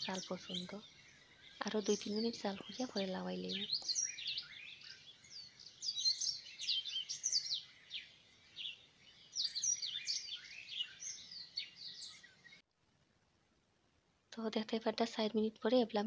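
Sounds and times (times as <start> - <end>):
small birds chirping: 0.0 - 12.6.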